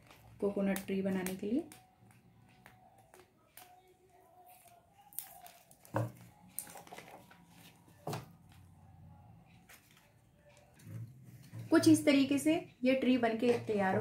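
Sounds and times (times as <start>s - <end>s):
plastic and tape rustling: 0.0s - 8.7s, 9.5s - 12.0s.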